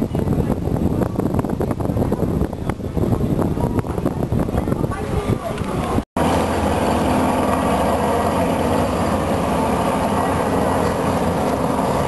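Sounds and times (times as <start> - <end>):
propeller aircraft droning overhead: 5.2 - 12.0.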